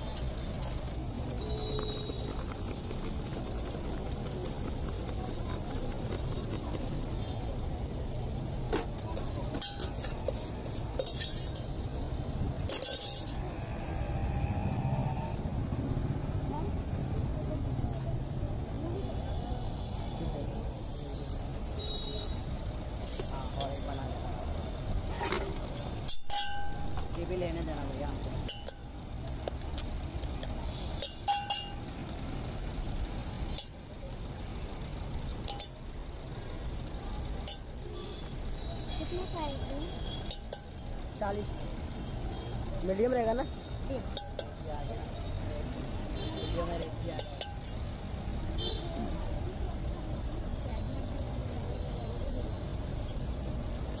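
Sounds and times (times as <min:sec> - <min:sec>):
low street traffic hum: 0:00.0 - 0:54.0
metal scoop clinking on steel pot: 0:09.2 - 0:11.7, 0:12.6 - 0:13.4, 0:26.0 - 0:27.1, 0:28.4 - 0:28.9, 0:31.0 - 0:31.9, 0:35.4 - 0:35.8, 0:40.2 - 0:40.8, 0:46.8 - 0:47.8
spoon clinking on metal tin: 0:26.0 - 0:26.9, 0:31.0 - 0:31.8.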